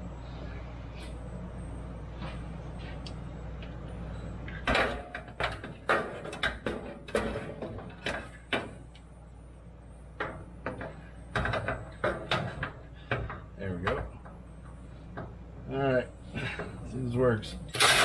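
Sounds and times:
steady low hum: 0.0 - 18.0
cordless impact tool bursts: 17.7 - 18.0.

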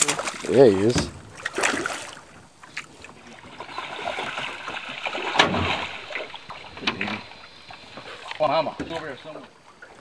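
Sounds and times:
water splashing against boat: 0.0 - 10.0
sharp hit on boat: 5.3 - 5.9.

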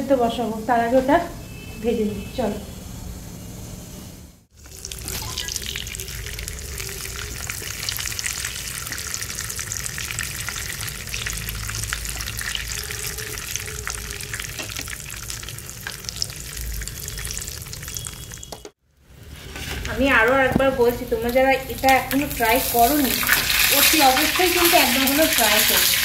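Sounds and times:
food sizzling in hot oil: 4.5 - 18.6, 19.6 - 26.0.

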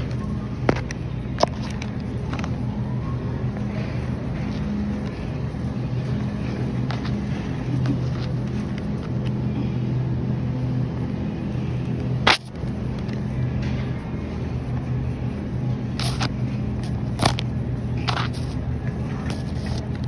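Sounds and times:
refrigerated case humming: 0.0 - 20.0.

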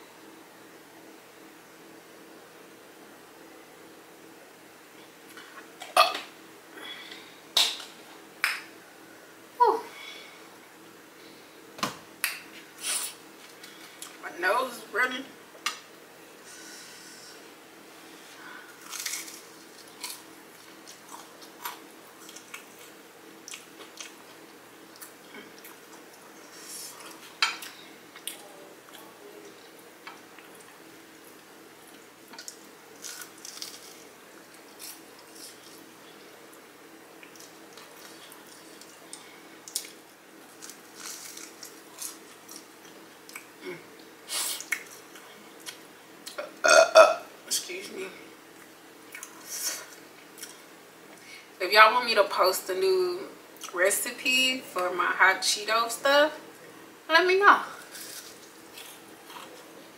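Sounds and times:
faint steady hum: 0.0 - 59.9
crunching and chewing: 18.7 - 46.5, 48.5 - 50.7, 57.8 - 59.9.

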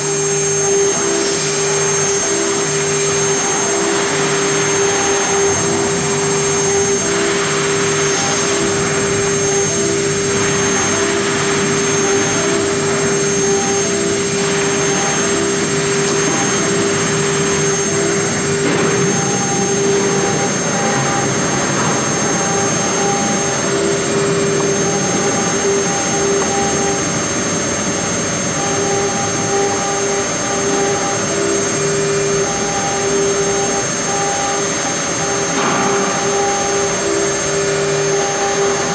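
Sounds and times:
engraving spindle whine: 0.0 - 38.9
lower machine hum: 0.0 - 38.9.

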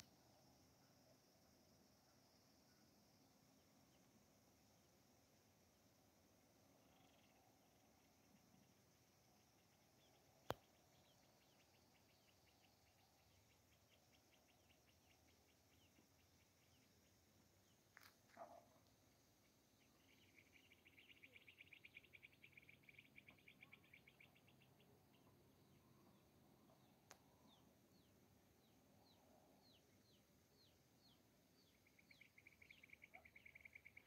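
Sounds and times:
faint insect chirring: 0.0 - 34.0.

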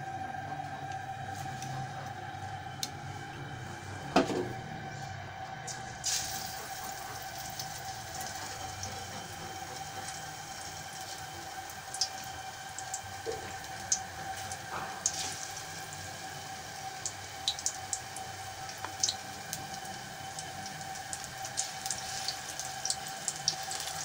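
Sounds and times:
oil sizzling and popping: 5.7 - 24.0.

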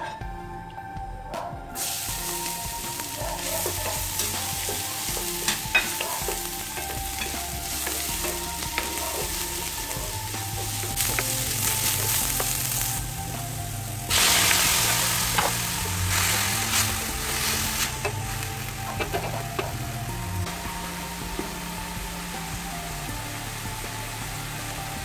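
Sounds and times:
spatula stirring and scraping wok: 1.8 - 20.6
garlic sizzling in oil: 1.8 - 25.0.

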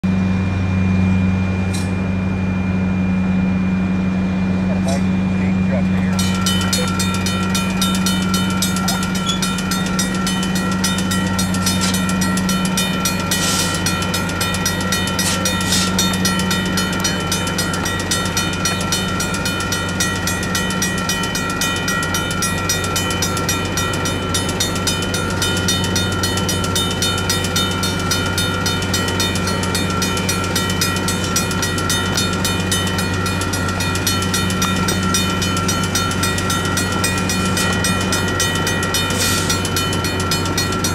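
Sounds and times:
train low hum: 0.0 - 40.9
crossing bells ringing: 0.1 - 40.9.

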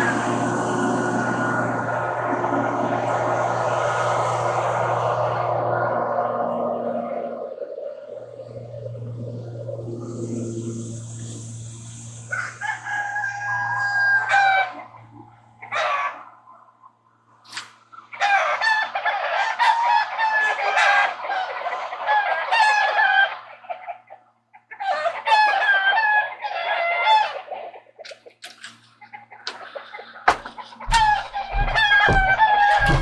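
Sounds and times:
low hum: 0.0 - 17.4, 28.6 - 33.0
rooster crowing: 12.2 - 16.3, 29.5 - 33.0
chickens clucking: 17.8 - 33.0.

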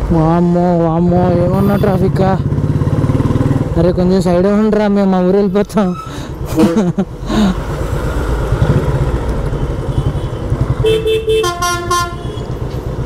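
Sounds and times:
motorcycle engine running: 0.0 - 5.0, 8.0 - 13.0
vehicle horns honking: 1.4 - 2.1, 9.9 - 12.6.

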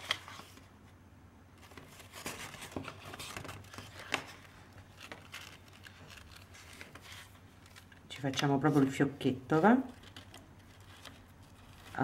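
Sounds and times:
paper bag rustling and crinkling: 1.6 - 9.1.

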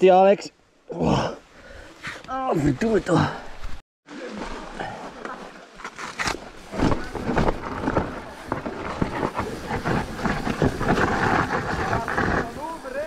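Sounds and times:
bike rattling over rough trail: 5.8 - 13.0.

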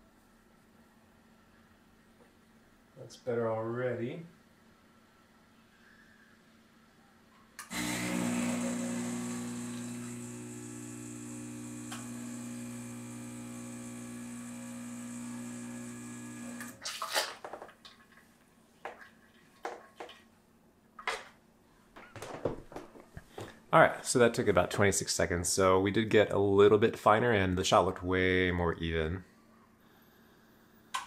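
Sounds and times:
espresso machine pump running: 7.6 - 16.8.

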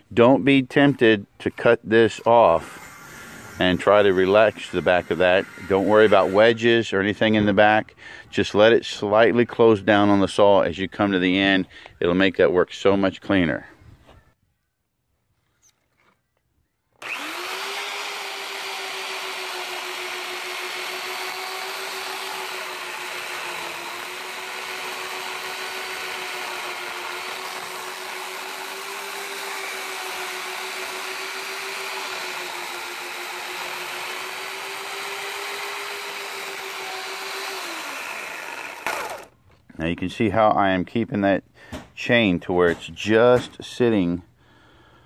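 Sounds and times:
electric chainsaw cutting log: 2.2 - 7.3, 17.0 - 39.4.

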